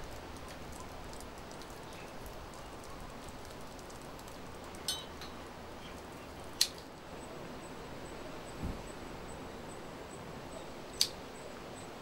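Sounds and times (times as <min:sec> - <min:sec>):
small tool clinking: 0:04.8 - 0:05.4.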